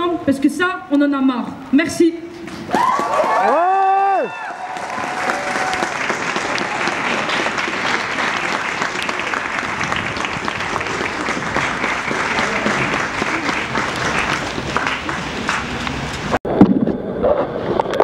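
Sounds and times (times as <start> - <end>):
crowd applauding: 2.7 - 16.4.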